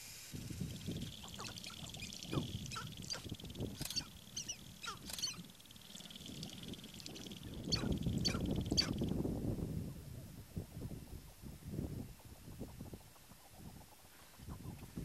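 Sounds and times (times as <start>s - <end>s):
grouse clucking calls: 0.5s - 9.1s, 12.2s - 15.0s.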